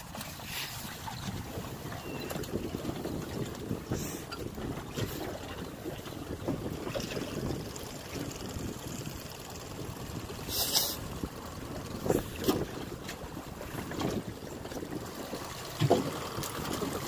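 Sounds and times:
choppy water: 0:00.0 - 0:17.0
wind buffeting microphone: 0:00.8 - 0:17.0
dull knocks on boat: 0:15.8 - 0:16.1.

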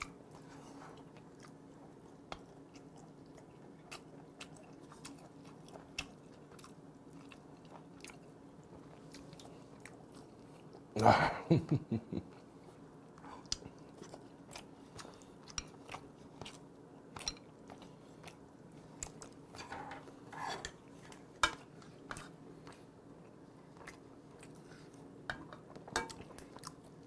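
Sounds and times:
faint steady hum: 0:00.0 - 0:27.0
person chewing and lip smacking: 0:01.0 - 0:10.9, 0:13.4 - 0:19.5, 0:22.2 - 0:25.1, 0:25.7 - 0:27.0
chopsticks and spoon clicking dishes: 0:25.3 - 0:26.2.

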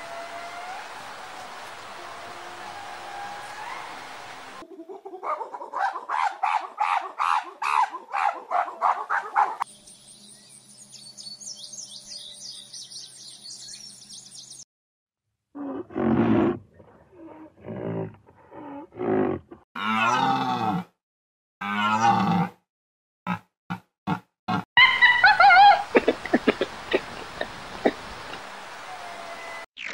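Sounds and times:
birds chirping: 0:06.9 - 0:14.6.

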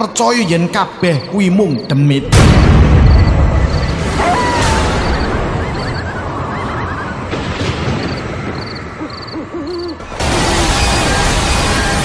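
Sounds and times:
warbling calls: 0:05.0 - 0:07.3, 0:08.5 - 0:10.0.

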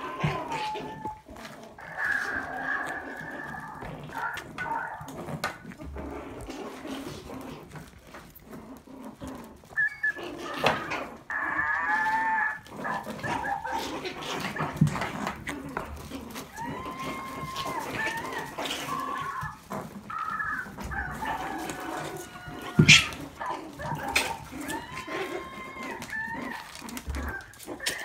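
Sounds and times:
puppies scuffling: 0:00.0 - 0:28.0
puppy whining: 0:00.0 - 0:28.0
puppy yipping: 0:09.7 - 0:28.0.

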